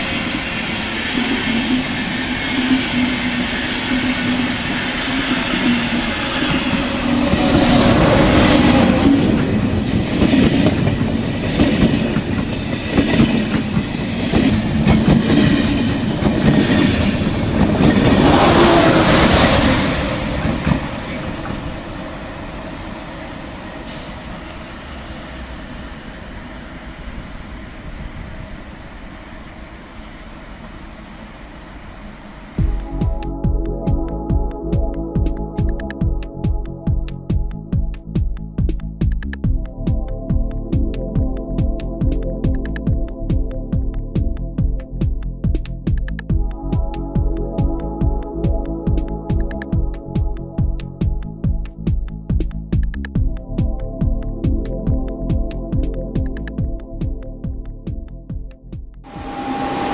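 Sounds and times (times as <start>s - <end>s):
train wheel and rail noise: 0.0s - 33.4s, 59.0s - 59.9s
passenger train passing: 0.0s - 36.0s, 59.1s - 59.9s.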